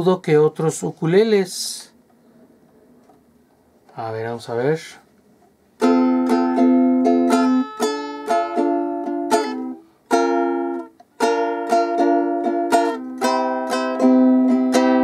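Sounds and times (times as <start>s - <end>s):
ukulele chords strummed: 5.8s - 15.0s.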